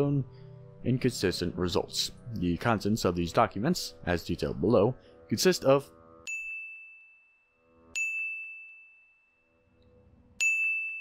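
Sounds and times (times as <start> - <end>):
bell-like ding: 6.3 - 9.8, 10.4 - 11.0.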